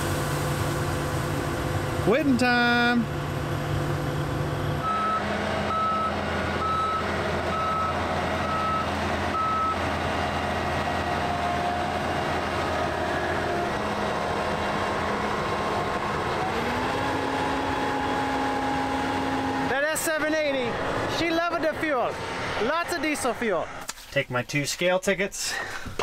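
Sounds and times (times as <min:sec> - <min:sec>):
engine running: 0:00.0 - 0:24.0
backup alarm beeping: 0:04.8 - 0:09.8.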